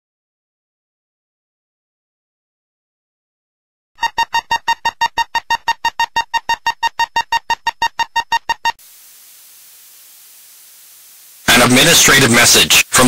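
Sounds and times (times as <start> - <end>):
rapid high-pitched electronic beeps: 4.0 - 8.8
faint steady hiss: 8.8 - 13.0.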